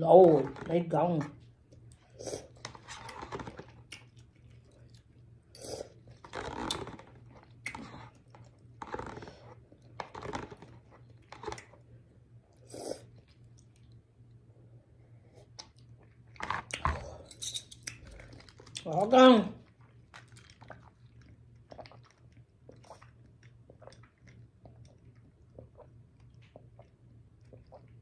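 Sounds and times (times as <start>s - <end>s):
chewing and slurping noodles: 1.8s - 11.9s, 19.6s - 28.0s.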